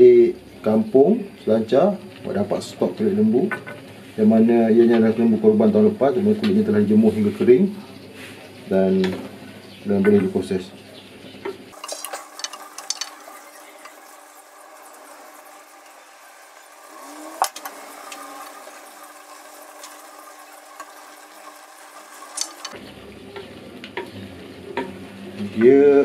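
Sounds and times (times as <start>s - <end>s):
sauce bubbling in a pot: 11.3s - 25.4s
wooden spatula scraping a pot: 11.7s - 22.8s.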